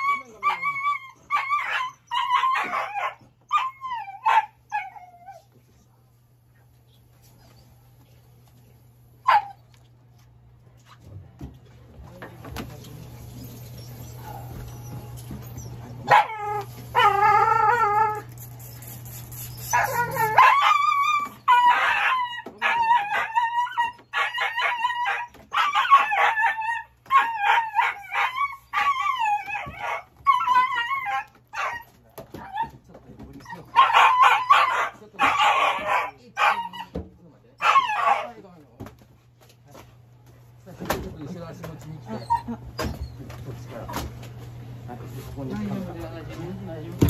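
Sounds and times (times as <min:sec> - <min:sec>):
dog yelping and howling: 0:00.0 - 0:05.5, 0:13.8 - 0:18.3, 0:19.7 - 0:32.7, 0:33.4 - 0:37.0, 0:37.6 - 0:38.3.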